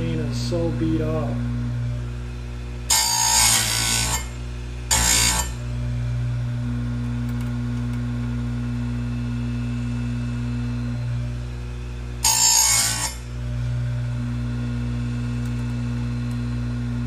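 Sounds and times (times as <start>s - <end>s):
grinder motor humming: 0.0s - 17.0s
abrasive wheel grinding chain: 12.2s - 13.3s.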